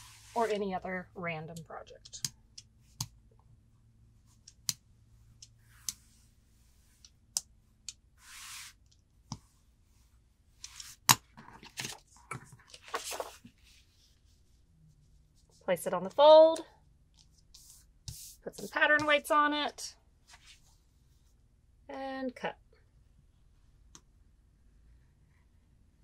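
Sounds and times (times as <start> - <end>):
fabric rustling: 0.0 - 0.7, 10.0 - 15.7.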